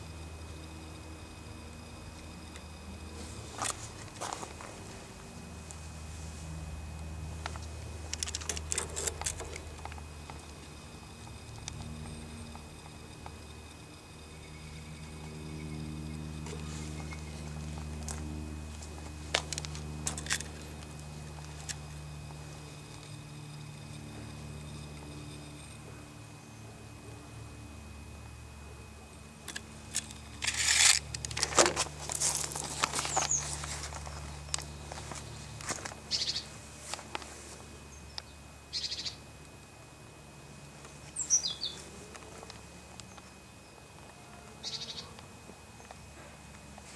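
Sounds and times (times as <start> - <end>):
low hum: 0.0 - 46.9
handling clicks and rustling: 7.4 - 10.4, 16.4 - 21.8, 29.5 - 36.0.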